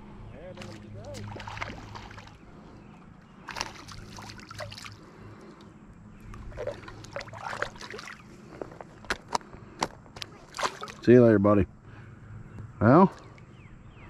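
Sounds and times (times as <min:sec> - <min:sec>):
water splashing and trickling: 0:00.4 - 0:02.7, 0:03.3 - 0:05.7, 0:06.3 - 0:09.2, 0:10.2 - 0:11.2.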